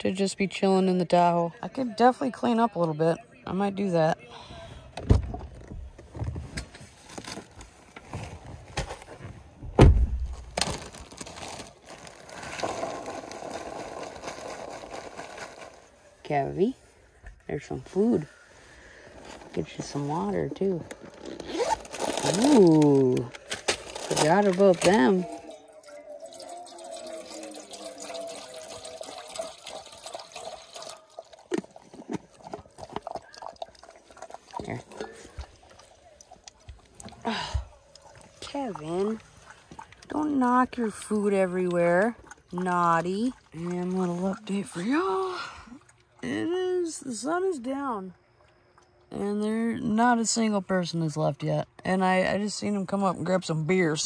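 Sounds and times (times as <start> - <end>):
rustling: 6.0 - 17.2, 17.8 - 25.6
dog eating from bowl: 23.9 - 45.0
water pouring into bowl: 24.2 - 37.1.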